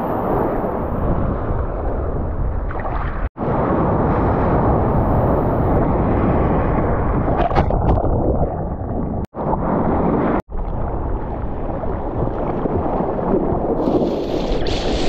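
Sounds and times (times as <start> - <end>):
wind and sea water rushing: 0.0 - 15.0.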